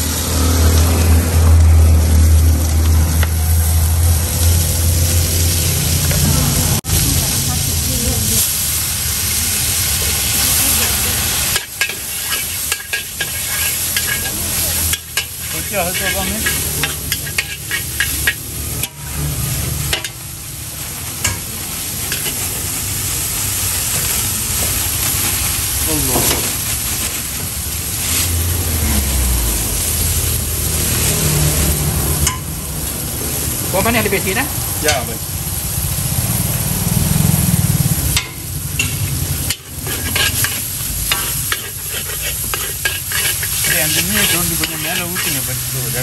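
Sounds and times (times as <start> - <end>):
noodles sizzling in a wok: 0.0 - 46.0
spatula scraping and clanking on pan: 10.9 - 20.3, 21.1 - 22.5, 38.1 - 46.0.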